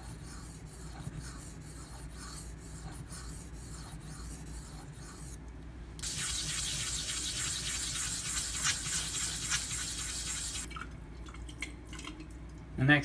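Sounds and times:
block scrubbing on wet stone: 6.0s - 10.7s.

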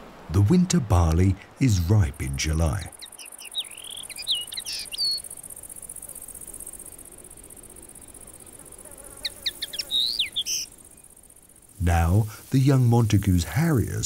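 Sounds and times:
insects chirring: 0.5s - 14.0s
small birds chirping: 1.8s - 7.1s, 7.8s - 13.4s.

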